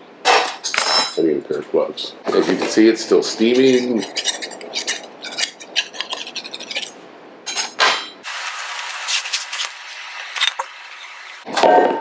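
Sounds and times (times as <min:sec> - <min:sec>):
knife scraping metal pan: 0:03.3 - 0:07.8.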